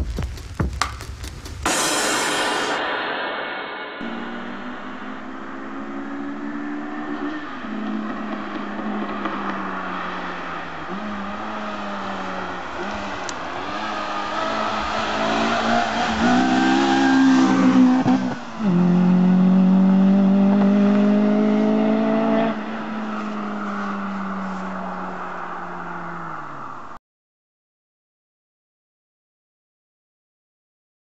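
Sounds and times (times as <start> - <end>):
rally car engine revving: 4.0 - 26.5.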